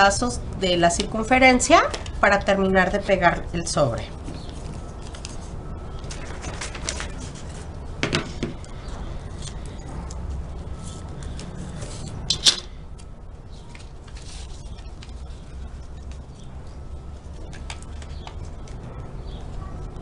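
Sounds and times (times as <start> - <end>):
paper being handled: 4.2 - 18.8.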